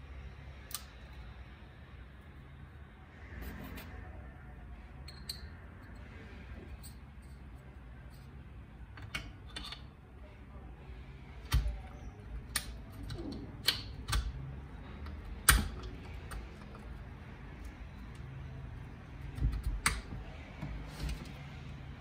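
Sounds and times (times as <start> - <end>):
metal clicks and taps: 8.9 - 9.9, 11.5 - 14.4.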